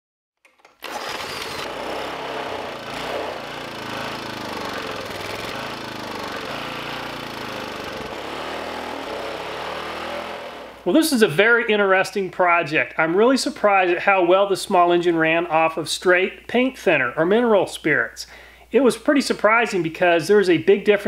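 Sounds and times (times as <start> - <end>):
small engine running: 0.8 - 10.8.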